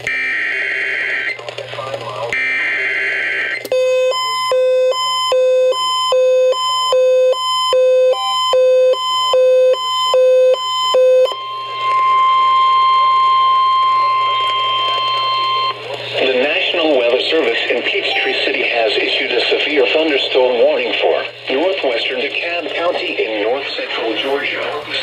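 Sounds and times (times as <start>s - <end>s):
two-pitch alarm beeps: 2.4s - 15.8s
data burst tones: 18.0s - 18.8s
steady alert tone: 18.1s - 18.5s.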